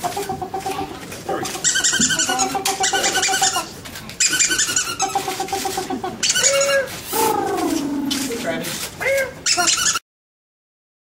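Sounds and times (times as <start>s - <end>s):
squeaky toy squeaking: 0.5s - 7.0s, 9.4s - 10.0s.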